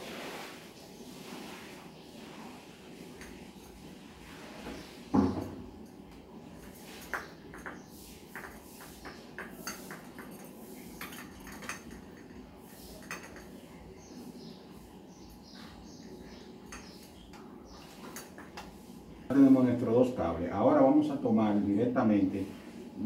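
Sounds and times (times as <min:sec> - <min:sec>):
light clicks and clinks: 0:08.4 - 0:13.8, 0:16.7 - 0:18.7.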